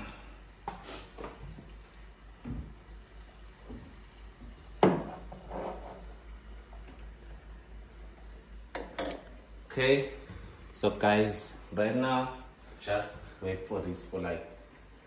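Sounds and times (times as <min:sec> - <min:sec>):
kitchen knocks and clatters: 0:04.8 - 0:06.2, 0:08.7 - 0:09.4.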